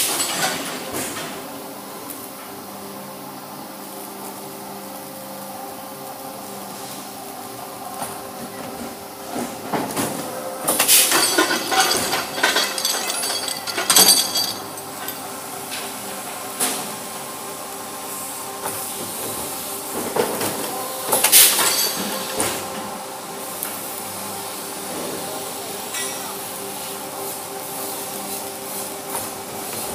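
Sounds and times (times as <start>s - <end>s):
steel chain links clinking: 10.9s - 15.2s
welding crackling hiss: 21.0s - 29.9s.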